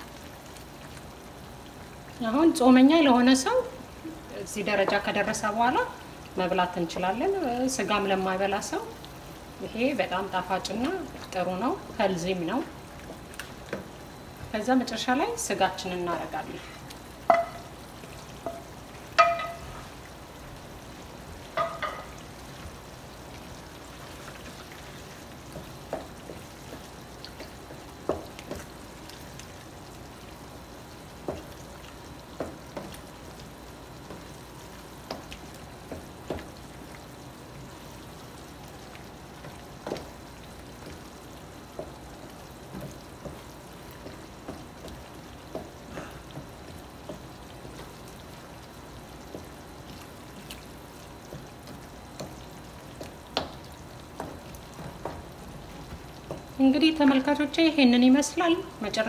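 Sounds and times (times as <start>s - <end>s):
sauce sizzling in a pot: 0.0s - 59.0s
spoon clanking against a pot: 17.3s - 17.7s, 18.4s - 19.7s, 21.5s - 22.2s.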